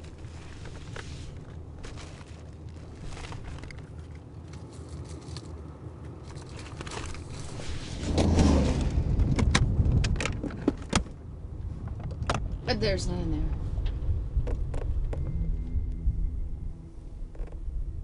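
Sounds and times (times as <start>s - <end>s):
rummaging through a handbag: 0.0s - 8.1s
low road hum: 0.0s - 18.0s
clicks and clinks in a purse: 3.5s - 7.4s.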